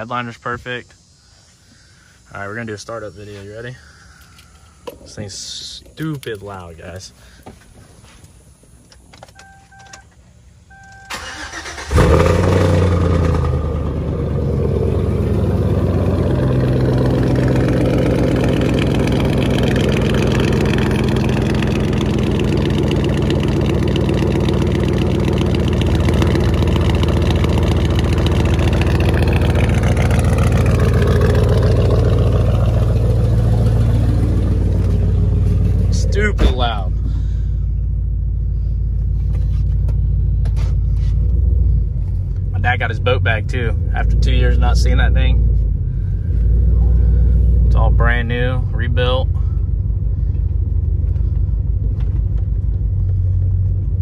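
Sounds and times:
starter motor cranking: 11.1 - 12.2
pickup truck engine idling: 13.1 - 41.1.

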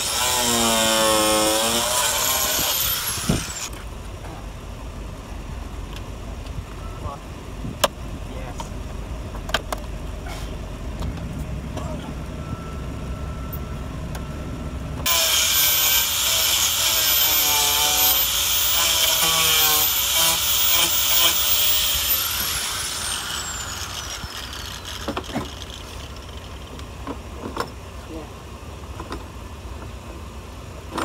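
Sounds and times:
cordless drill motor whining: 0.0 - 3.7, 15.0 - 26.8.

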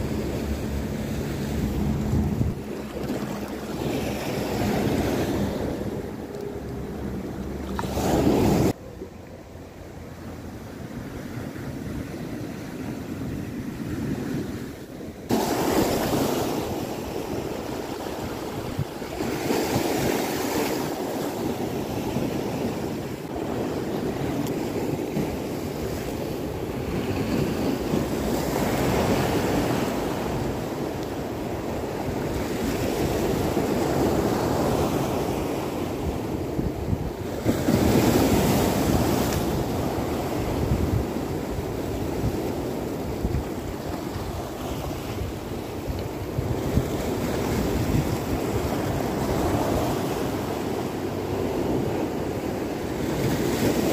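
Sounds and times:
surf breaking over rocks: 15.3 - 17.9.

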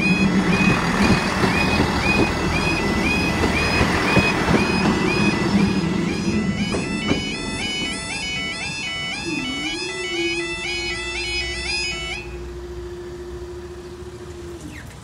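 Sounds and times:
train rumbling past: 0.0 - 10.4
level crossing alarms warbling: 0.0 - 14.1.

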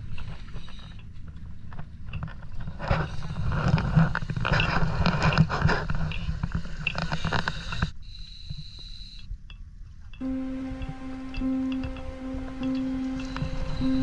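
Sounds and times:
faint steady high tone: 10.2 - 14.0.

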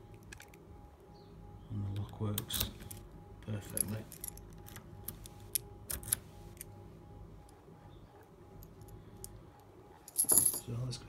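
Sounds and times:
keys jingling on a key ring: 10.1 - 10.7.

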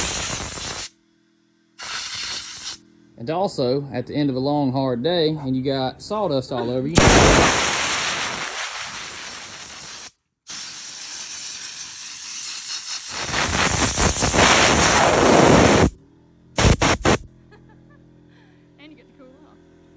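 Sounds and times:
compressed air blow gun hissing: 0.0 - 0.9, 1.8 - 2.8, 7.0 - 15.9, 16.6 - 17.2.

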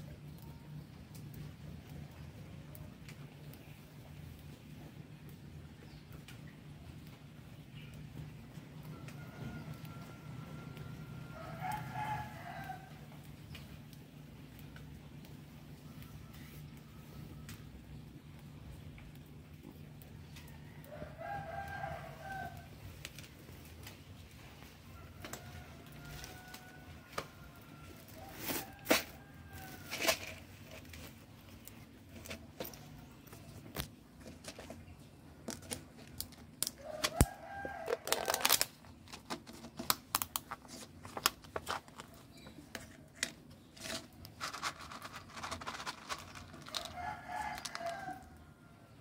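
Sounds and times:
distant rooster crowing: 8.8 - 13.1, 20.4 - 22.8, 24.8 - 30.4, 36.6 - 38.7, 43.8 - 49.0.

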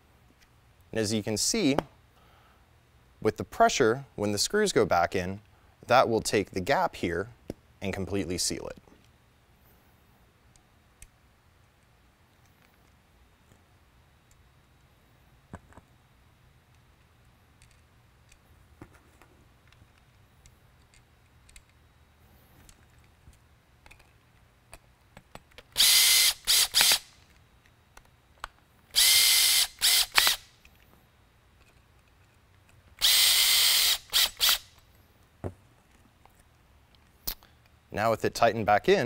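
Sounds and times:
handling clicks: 19.7 - 21.8
cordless drill driving screws: 25.8 - 27.1, 29.0 - 30.4, 33.0 - 34.7.

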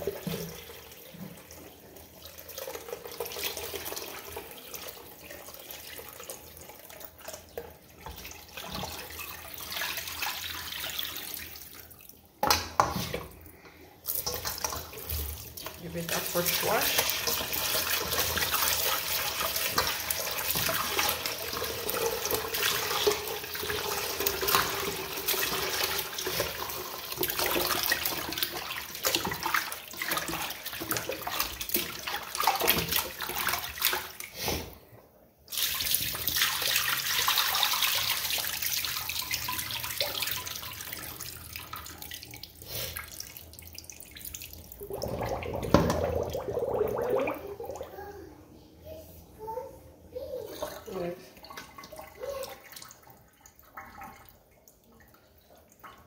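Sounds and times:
tap water running into steel bowl: 14.1 - 34.2, 35.7 - 42.5, 44.5 - 46.4.

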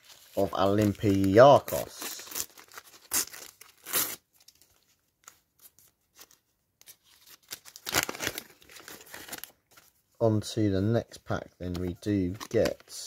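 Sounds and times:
paper packet tearing: 0.0 - 4.6, 7.0 - 9.6
wrapper rustling: 0.0 - 5.0, 6.1 - 10.0.

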